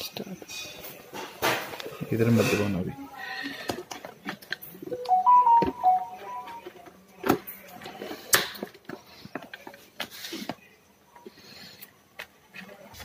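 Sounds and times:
high pitched tones: 4.9 - 6.6.

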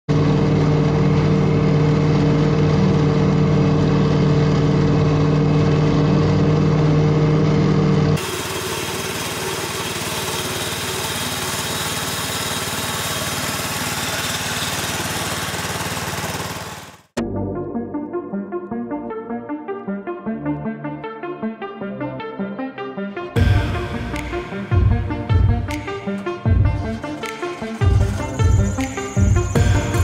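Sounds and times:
hissy reel mower: 0.1 - 17.2, 23.4 - 30.0
mower engine humming: 0.1 - 17.2, 23.4 - 30.0.

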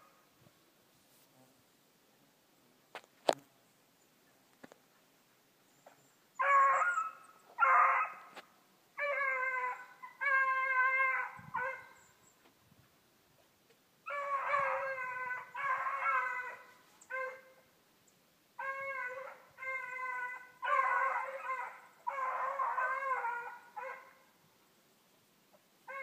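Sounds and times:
hounds baying: 6.4 - 8.4, 9.0 - 12.1, 14.1 - 17.6, 18.6 - 24.2.

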